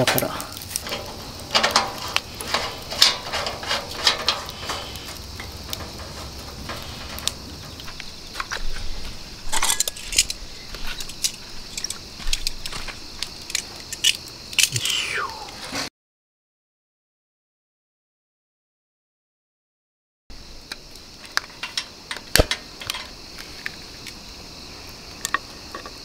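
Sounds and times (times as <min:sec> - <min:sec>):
metal lantern clicks: 0:00.1 - 0:08.8, 0:09.5 - 0:14.8, 0:20.7 - 0:24.2.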